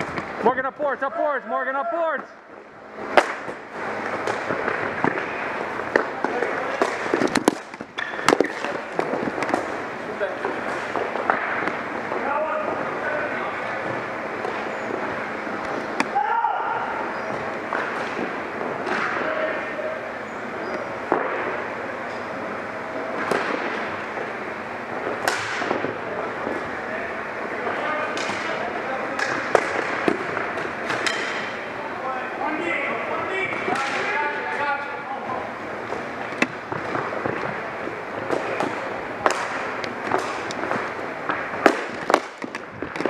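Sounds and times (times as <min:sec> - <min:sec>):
court and player noise: 0:00.0 - 0:43.0
steady noisy haze: 0:00.0 - 0:43.0
ball hitting boards: 0:03.1 - 0:05.3, 0:05.9 - 0:09.7, 0:25.0 - 0:26.6, 0:28.1 - 0:31.5, 0:38.2 - 0:43.0
hockey stick striking ball: 0:03.1 - 0:05.3, 0:05.9 - 0:09.8, 0:10.4 - 0:12.2, 0:17.7 - 0:19.3, 0:21.1 - 0:21.5, 0:23.2 - 0:23.9, 0:25.1 - 0:26.0, 0:28.2 - 0:31.6, 0:38.2 - 0:43.0.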